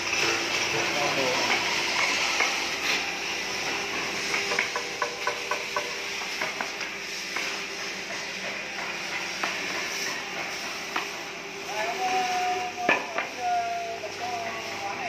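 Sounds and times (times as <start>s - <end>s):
workshop machinery hiss and hum: 0.0s - 15.0s.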